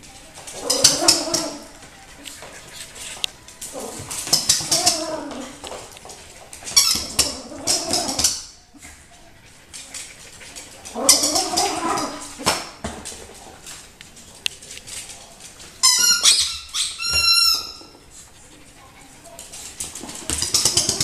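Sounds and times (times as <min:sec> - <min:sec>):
puppy making wavering sounds: 0:00.6 - 0:01.7, 0:11.0 - 0:12.3
claws clicking on wooden floor: 0:19.4 - 0:21.0.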